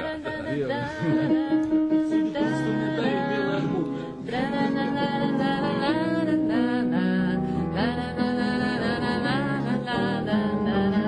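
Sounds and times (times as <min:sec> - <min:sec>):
acoustic guitar music: 0:00.0 - 0:11.0
held melody line: 0:00.0 - 0:11.0.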